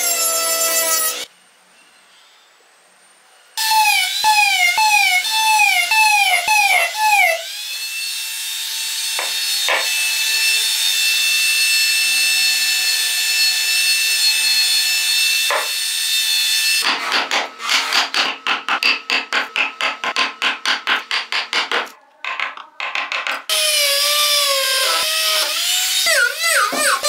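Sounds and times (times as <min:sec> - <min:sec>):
chisel knocking on wood: 0:09.2 - 0:09.9, 0:15.5 - 0:15.8, 0:16.8 - 0:23.5.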